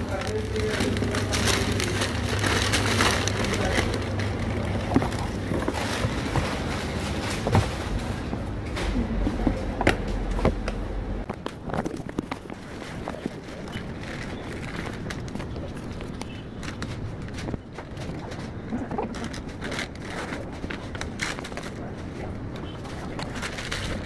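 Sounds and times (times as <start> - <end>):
background chatter: 0.0 - 6.8
low steady hum: 0.0 - 17.6.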